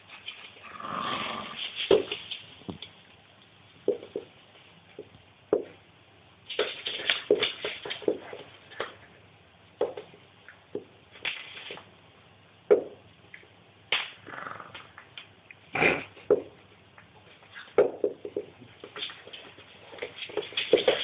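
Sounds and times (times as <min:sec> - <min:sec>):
dog play growling: 0:00.6 - 0:01.8, 0:14.2 - 0:15.0
knocks and scuffles: 0:06.5 - 0:09.0, 0:17.1 - 0:21.0.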